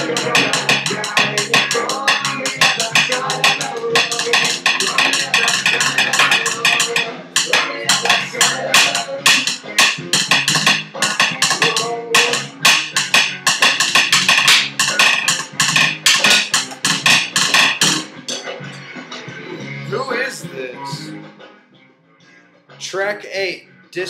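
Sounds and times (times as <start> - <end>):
drum kit fast beat: 0.0 - 18.4.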